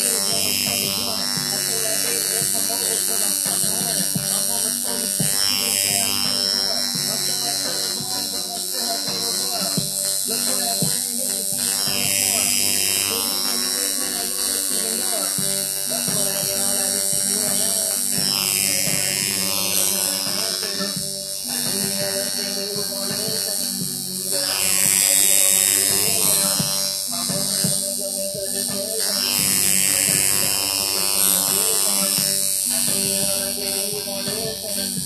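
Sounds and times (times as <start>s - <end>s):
faint music: 0.0s - 35.0s
tattoo machine buzzing: 0.0s - 35.0s.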